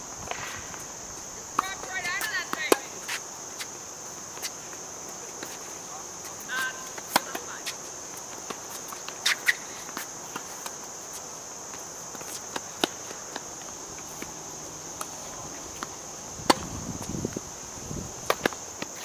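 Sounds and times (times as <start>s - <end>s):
insects droning: 0.0s - 19.0s
tennis ball bouncing: 1.5s - 2.9s, 7.0s - 7.5s, 12.1s - 14.3s, 15.8s - 17.1s, 18.2s - 18.6s
tennis racquet hitting ball: 15.8s - 16.7s.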